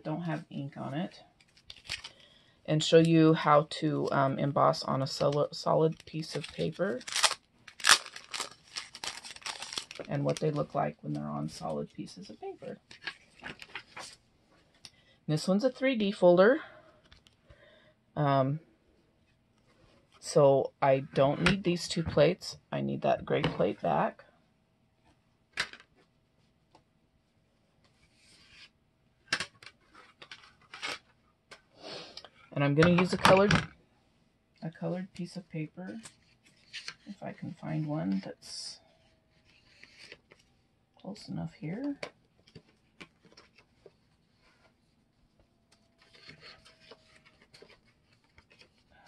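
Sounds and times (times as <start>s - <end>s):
plastic plates and paper handled: 5.0s - 14.8s, 32.7s - 33.7s, 41.6s - 48.9s
paper rustling and tapping: 12.9s - 14.2s.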